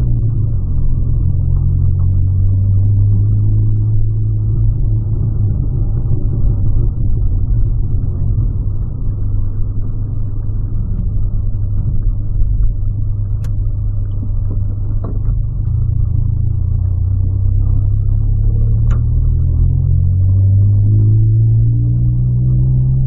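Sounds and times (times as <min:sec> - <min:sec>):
car engine and road drone: 0:00.0 - 0:23.0.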